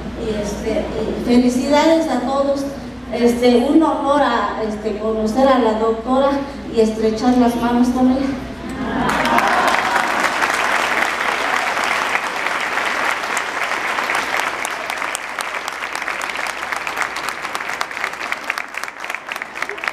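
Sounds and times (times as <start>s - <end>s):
audience applauding: 9.0s - 19.9s.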